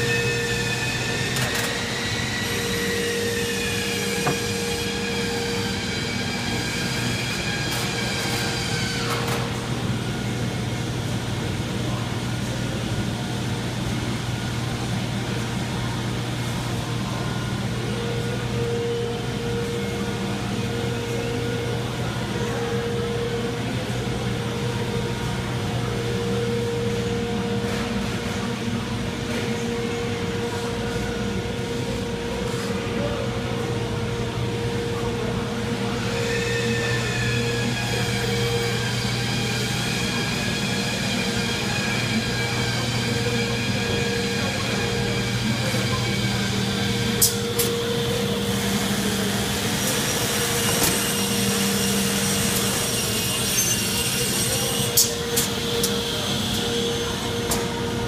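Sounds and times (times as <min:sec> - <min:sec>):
machine whine: 0:00.0 - 0:58.0
woodworking machinery hum: 0:00.0 - 0:58.0.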